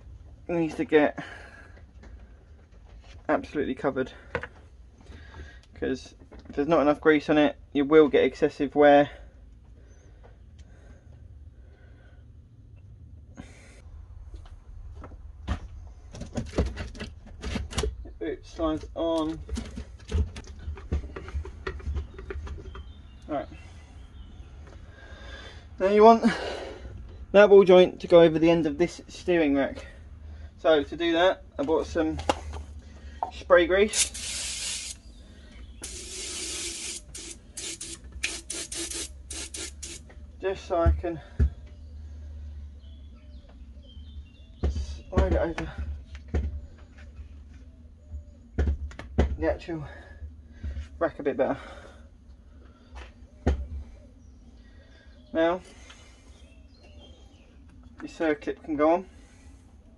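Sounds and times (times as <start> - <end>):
aerosol can spraying: 33.9 - 35.0, 35.8 - 40.1.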